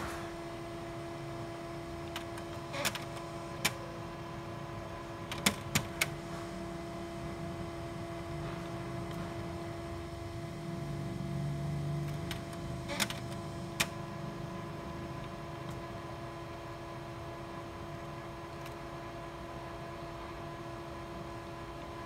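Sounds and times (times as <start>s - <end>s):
printer mechanical hum: 0.0s - 22.0s
printer sharp clicks: 2.1s - 3.8s, 5.2s - 6.2s, 12.1s - 14.0s.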